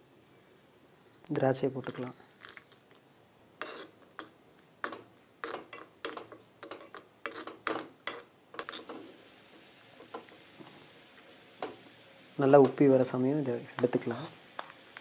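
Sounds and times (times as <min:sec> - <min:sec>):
spoon scraping clay pot: 0:01.0 - 0:03.0, 0:03.6 - 0:09.2
faint sizzle of frying: 0:03.5 - 0:15.0.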